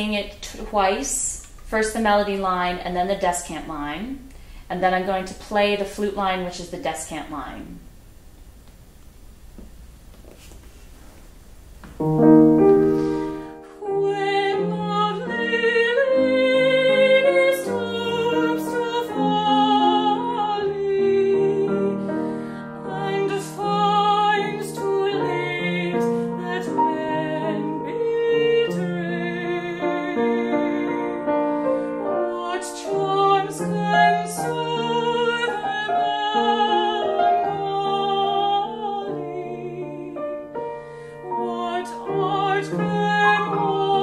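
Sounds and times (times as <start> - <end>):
grand piano: 11.2 - 44.0
woman singing operatically: 13.8 - 22.1, 22.8 - 31.2, 32.1 - 40.4, 41.2 - 44.0.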